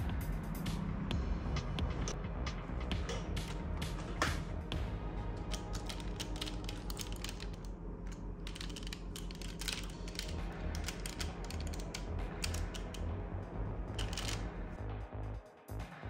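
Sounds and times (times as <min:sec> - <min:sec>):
plastic toy parts clicking: 0:05.3 - 0:13.1, 0:13.9 - 0:14.5.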